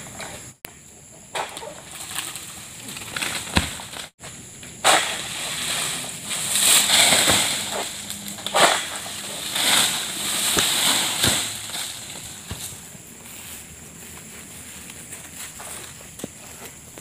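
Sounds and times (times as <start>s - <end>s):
palm fronds rustling: 1.4s - 17.0s
sharp cracks: 4.8s - 12.8s.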